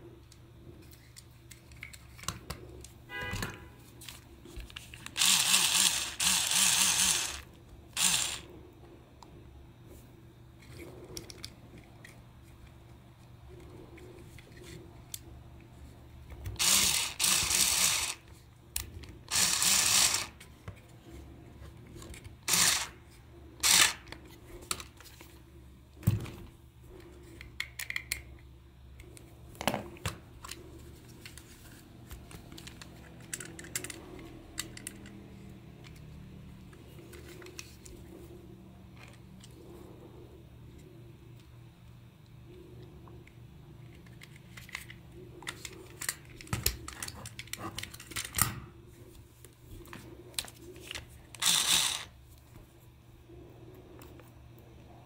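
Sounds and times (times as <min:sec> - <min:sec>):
electric screwdriver running: 0:05.1 - 0:08.5, 0:16.6 - 0:18.2, 0:19.3 - 0:20.4, 0:22.5 - 0:23.0, 0:23.6 - 0:24.0, 0:51.4 - 0:52.1
plastic parts clicking and knocking: 0:27.3 - 0:30.6, 0:31.2 - 0:36.0, 0:43.8 - 0:48.7.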